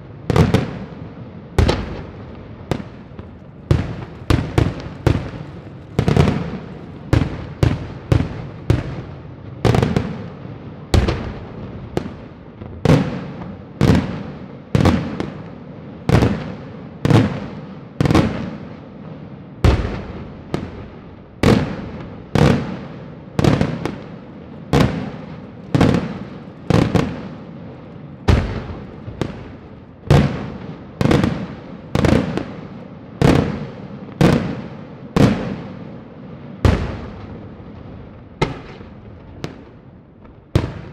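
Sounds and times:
fireworks shells bursting: 3.1 - 7.6.

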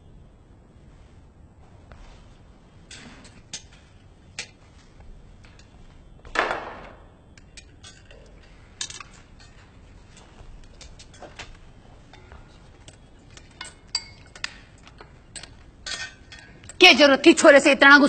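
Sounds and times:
dishes and cutlery clinking: 7.4 - 16.8.

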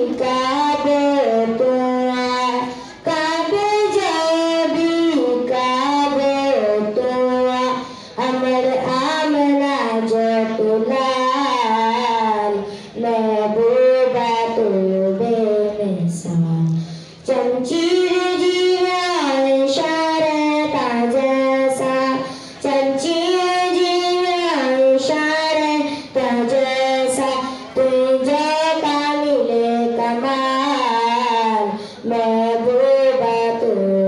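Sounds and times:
boy singing unaccompanied: 0.0 - 34.0
short breaths: 2.6 - 3.0, 7.8 - 8.2, 12.6 - 13.0, 16.7 - 17.2, 22.2 - 22.6, 25.9 - 26.2, 27.4 - 27.8, 31.7 - 32.0.

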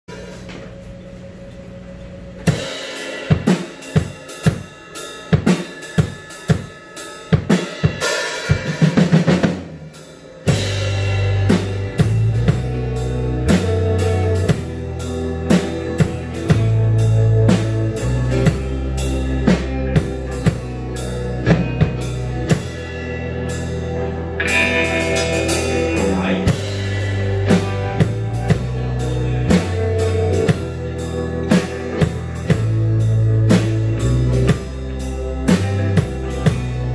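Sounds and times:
rock band playing: 2.3 - 36.9
drum and guitar hits: 2.4 - 36.9
low bass notes: 8.9 - 36.9.

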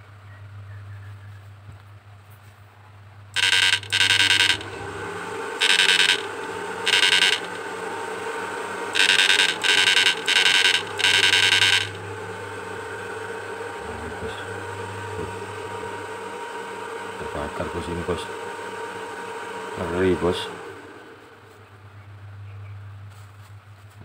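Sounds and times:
low hum: 0.0 - 18.5
inverter buzzing: 2.9 - 24.0.

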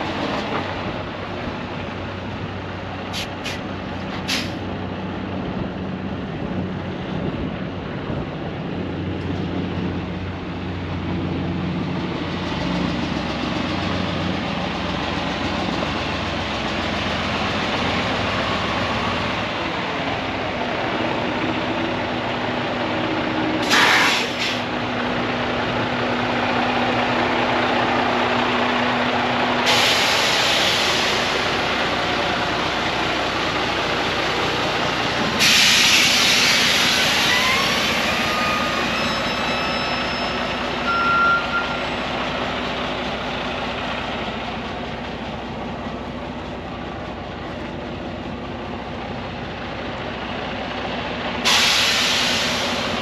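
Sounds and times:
diesel truck engine idling: 0.0 - 53.0
air hissing bursts: 23.6 - 24.7, 29.6 - 31.3, 35.4 - 38.0, 51.4 - 53.0.

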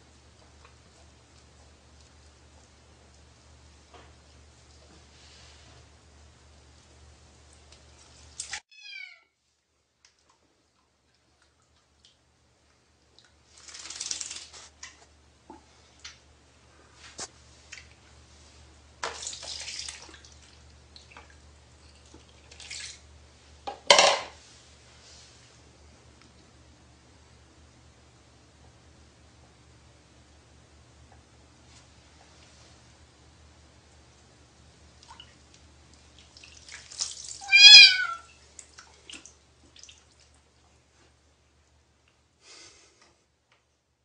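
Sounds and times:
cat meowing loudly: 8.7 - 9.4, 37.4 - 38.3
water dripping: 10.0 - 16.2, 19.0 - 23.0, 34.9 - 40.6
water splashing: 13.2 - 14.7, 19.0 - 23.0, 36.0 - 40.4.

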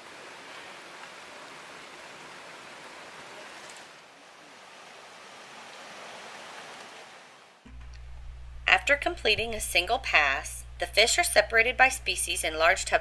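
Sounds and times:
mountain stream rushing: 0.0 - 7.7.

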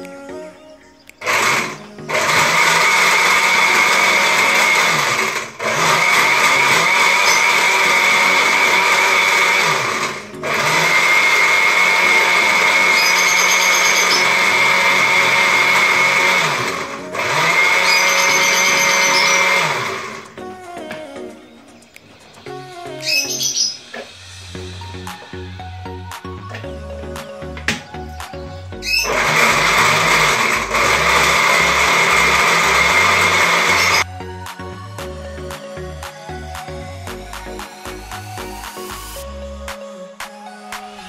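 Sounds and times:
blender motor whining: 1.2 - 20.4, 28.8 - 34.1.

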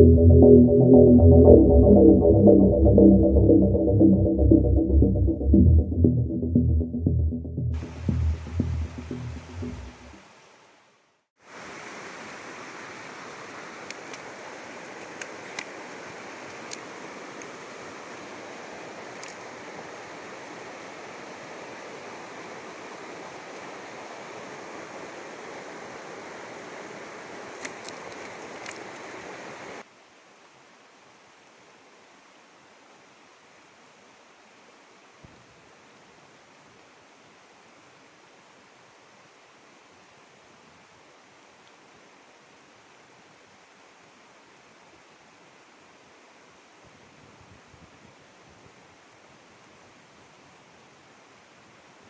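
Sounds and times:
river rushing over rapids: 11.5 - 29.9
faint clicks: 27.6 - 29.1.

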